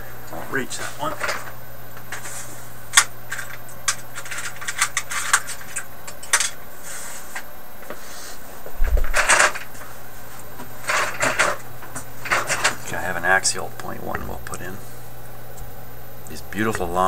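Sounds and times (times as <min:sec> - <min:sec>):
small hard parts clicking and rattling: 0:02.9 - 0:06.6, 0:09.1 - 0:09.8, 0:10.8 - 0:12.8.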